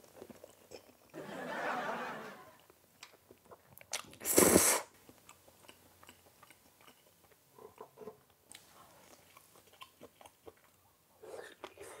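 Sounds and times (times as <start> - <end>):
quiet chewing: 0.0 - 1.2, 5.0 - 12.0.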